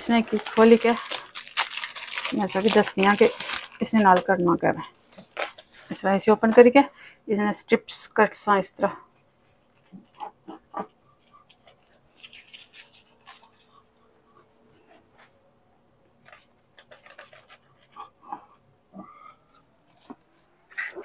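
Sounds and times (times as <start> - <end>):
paper crackling: 0.0 - 4.3, 11.7 - 13.6, 16.2 - 18.0.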